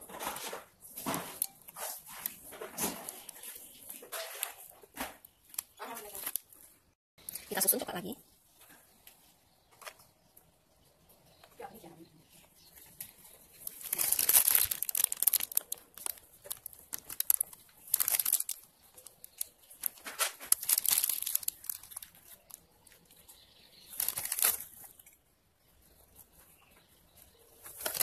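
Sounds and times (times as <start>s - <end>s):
plastic piping bag crinkling: 5.4s - 6.6s, 12.9s - 25.1s, 27.6s - 28.0s.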